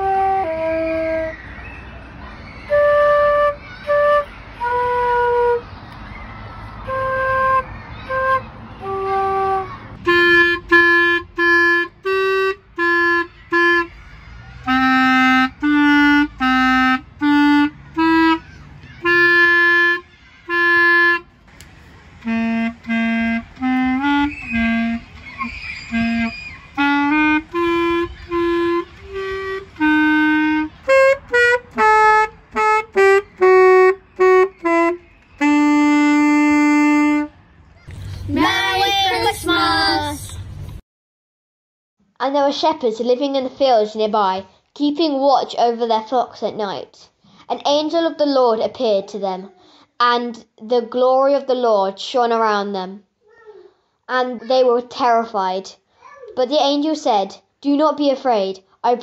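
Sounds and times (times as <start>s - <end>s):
clarinet playing: 0.0s - 1.4s, 2.6s - 5.7s, 6.8s - 37.4s
flute playing: 0.0s - 37.4s
alto saxophone playing: 6.8s - 14.0s, 14.6s - 37.4s.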